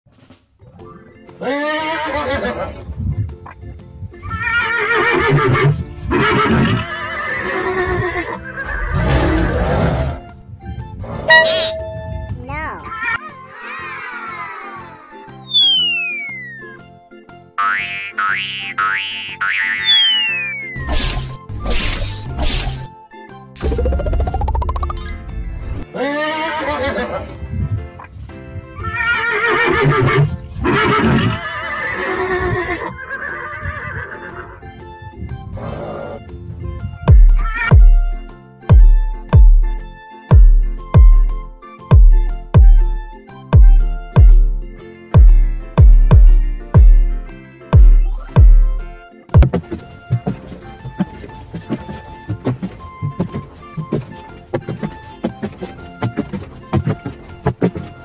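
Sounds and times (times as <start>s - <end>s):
background music: 0.1s - 58.0s
horse whinnying: 1.4s - 2.9s, 4.2s - 10.3s, 25.9s - 27.4s, 28.8s - 36.4s.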